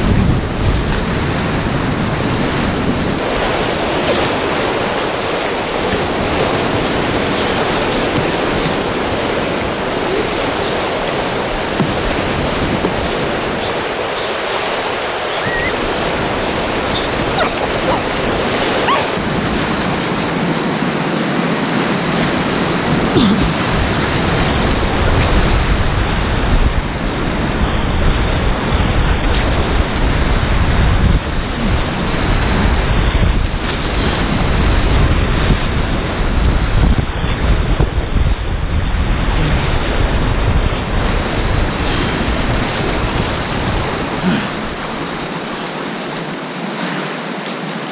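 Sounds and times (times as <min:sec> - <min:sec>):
wind buffeting microphone: 0:00.0 - 0:46.3
water splashing over kayak: 0:00.0 - 0:47.9
whitewater rapids rushing: 0:03.1 - 0:36.9.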